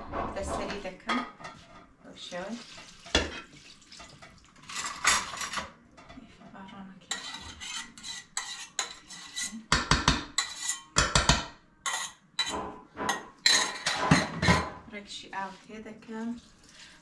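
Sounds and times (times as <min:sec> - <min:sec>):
liquid pouring into pot: 0:02.6 - 0:05.6, 0:16.4 - 0:17.0.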